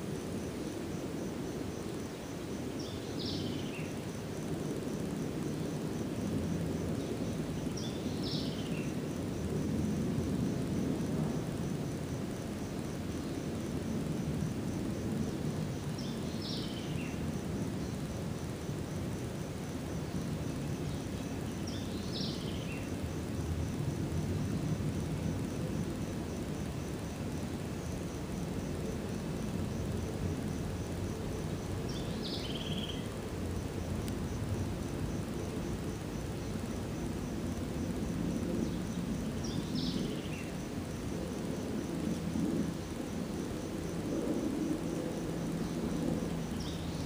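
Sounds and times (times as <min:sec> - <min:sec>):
high insect trill: 0:00.0 - 0:47.0
low rushing background noise: 0:00.0 - 0:47.0.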